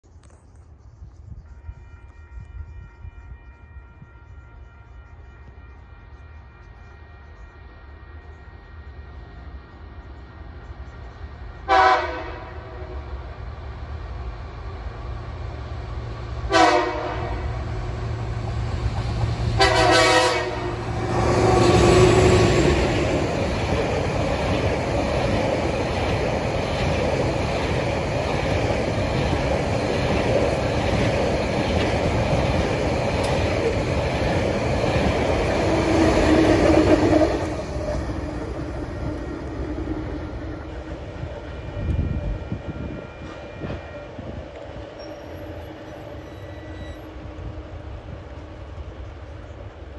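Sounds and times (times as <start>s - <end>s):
train horn blasts: 1.4s - 9.4s, 11.6s - 13.1s, 16.5s - 18.4s, 19.5s - 23.1s, 40.3s - 47.9s
locomotives passing loudly: 17.2s - 46.4s.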